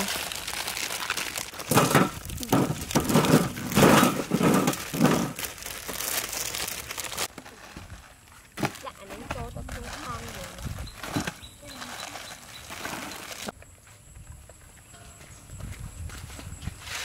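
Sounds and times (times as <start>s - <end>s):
plastic packets crinkling: 0.0s - 13.5s.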